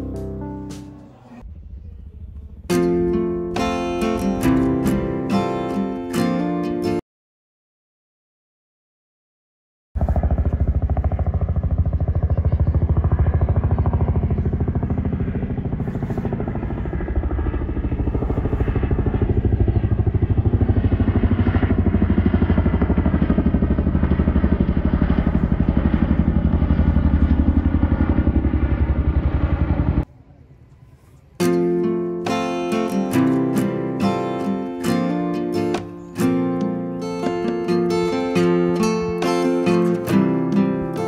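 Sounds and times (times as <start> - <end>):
helicopter rotors chopping: 10.0 - 30.1.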